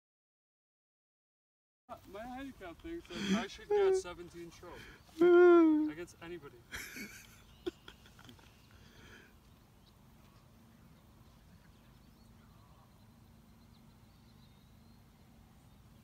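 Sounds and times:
faint bird chirps: 0:07.2 - 0:16.0.

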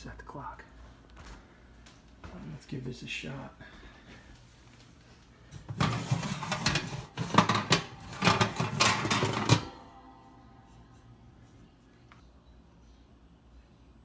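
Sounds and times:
wire oven rack rattling: 0:05.7 - 0:09.8.

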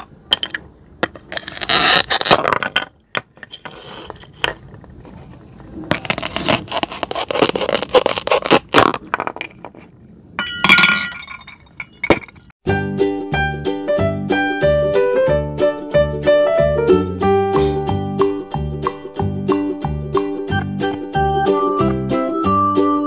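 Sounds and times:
plastic knife scraping cutting board: 0:03.4 - 0:09.9.

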